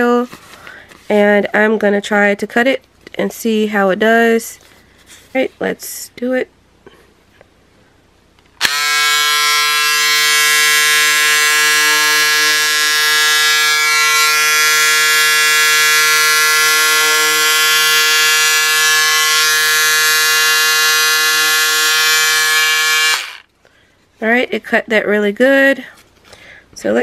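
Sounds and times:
electric scissors motor buzzing: 8.6s - 23.5s.

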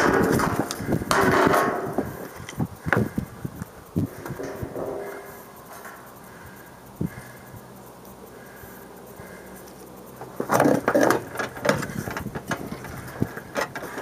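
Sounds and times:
sharp knocks and clicks: 10.2s - 14.0s.

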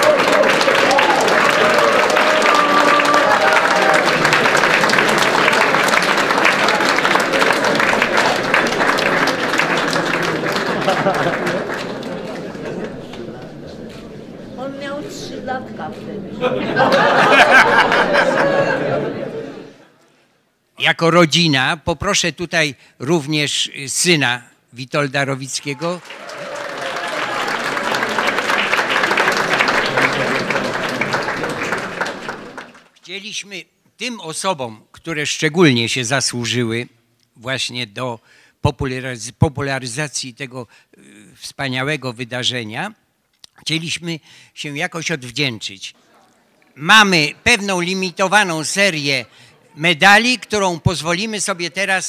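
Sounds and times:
crowd applauding: 0.0s - 14.4s, 16.7s - 19.2s, 25.6s - 33.0s.

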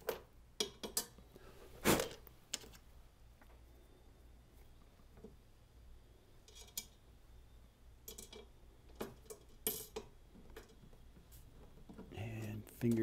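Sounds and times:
steel bolt and washer clinking: 8.0s - 10.8s.

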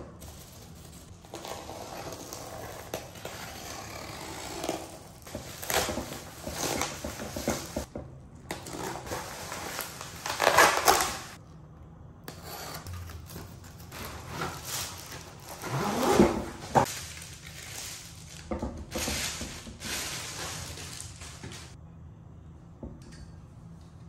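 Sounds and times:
plastic packaging crinkling: 8.5s - 11.4s, 16.5s - 21.8s.

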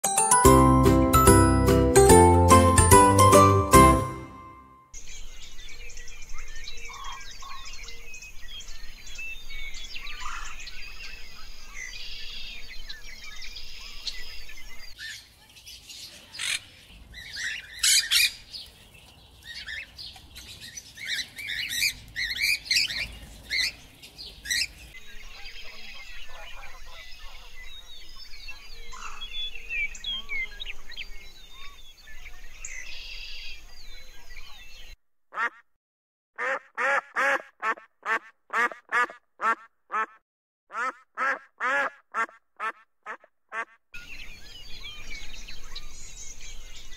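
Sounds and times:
birds chirping and twittering: 4.5s - 35.0s, 44.0s - 46.9s
birds squawking harshly: 10.1s - 10.6s, 16.3s - 18.5s, 20.6s - 23.8s, 24.4s - 24.8s.

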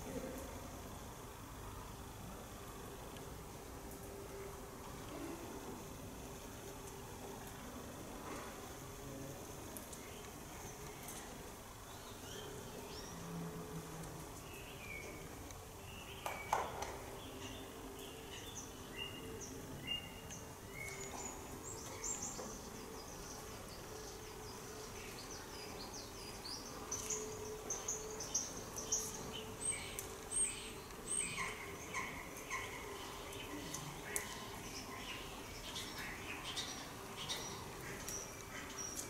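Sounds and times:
small birds chirping: 9.8s - 13.3s, 14.4s - 39.0s.

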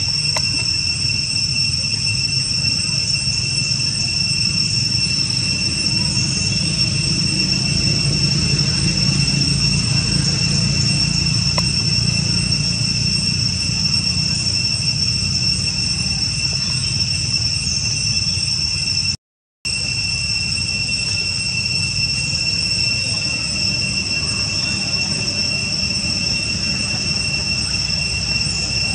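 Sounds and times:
low rumble: 0.0s - 18.8s
insects droning: 0.0s - 28.9s.

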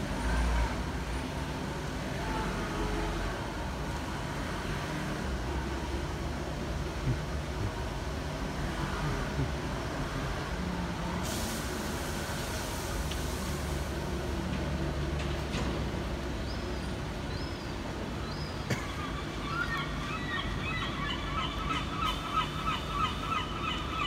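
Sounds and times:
street traffic rumble: 0.0s - 24.0s
brief hiss: 11.2s - 13.8s.

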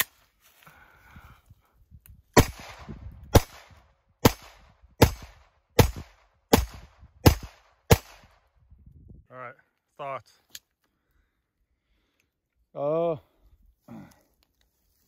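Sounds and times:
pistol shots: 2.4s - 8.4s.

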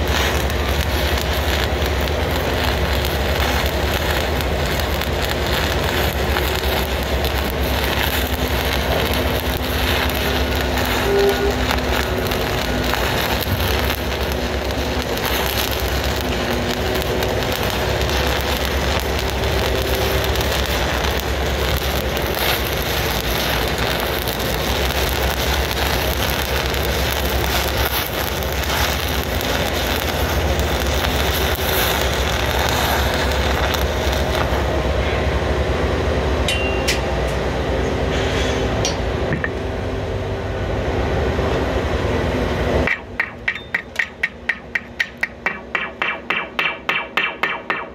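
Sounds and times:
welding arc crackling: 0.0s - 40.9s, 41.6s - 47.9s
low hum: 0.4s - 47.2s.

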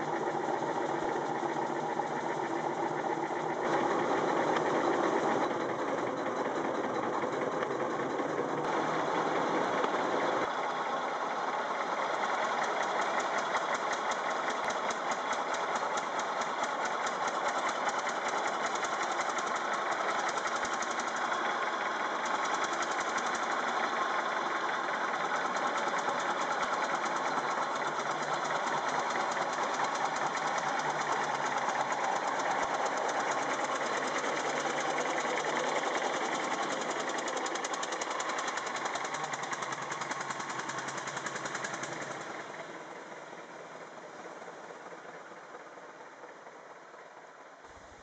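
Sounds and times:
car engine running: 0.0s - 47.0s.

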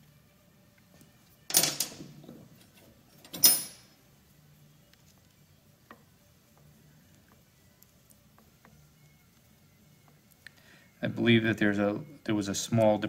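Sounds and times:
metallic clatters: 1.5s - 4.0s.

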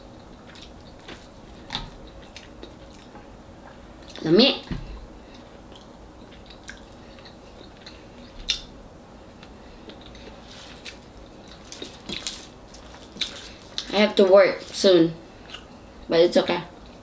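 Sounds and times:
chewing and mouth smacks: 0.2s - 4.2s, 5.3s - 8.7s.

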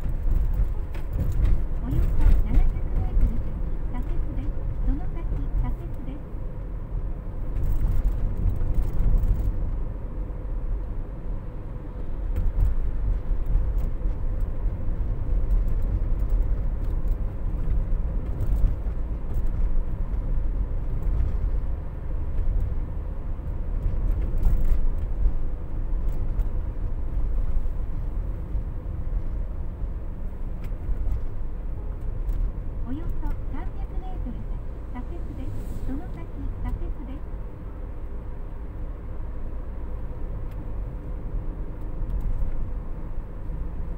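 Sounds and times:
engine and tyre rumble: 0.0s - 43.9s.

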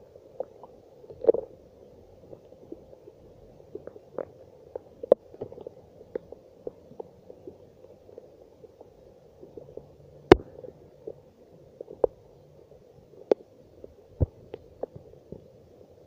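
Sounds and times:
faint hiss of rain: 0.0s - 16.0s
raindrops tapping on phone: 10.3s - 10.6s.

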